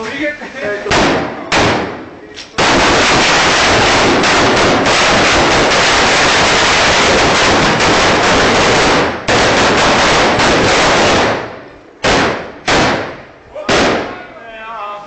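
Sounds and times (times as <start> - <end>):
firecrackers crackling: 0.0 - 14.9.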